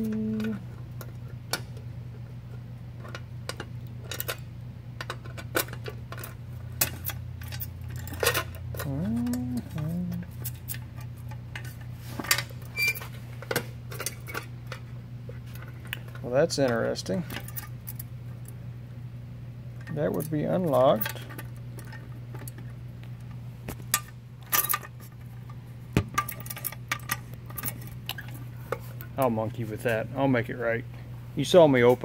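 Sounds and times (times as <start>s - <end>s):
low hum: 0.0s - 1.3s, 4.7s - 13.0s.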